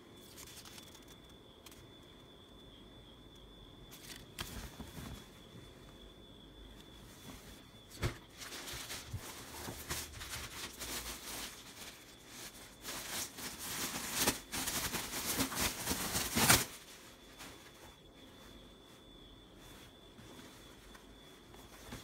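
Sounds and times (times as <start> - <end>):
plastic bag crinkling: 8.3 - 17.7.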